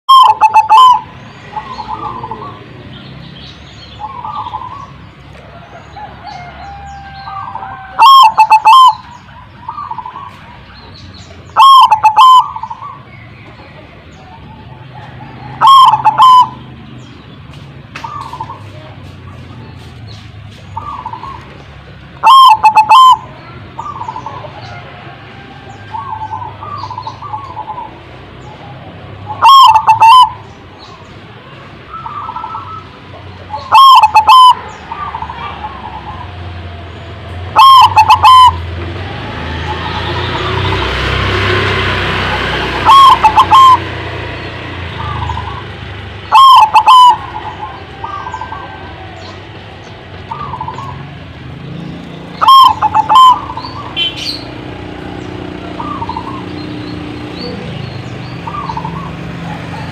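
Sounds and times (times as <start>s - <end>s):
doves cooing: 0.1s - 2.8s, 4.0s - 10.6s, 11.3s - 13.1s, 13.9s - 17.0s, 20.7s - 31.1s, 31.9s - 59.9s.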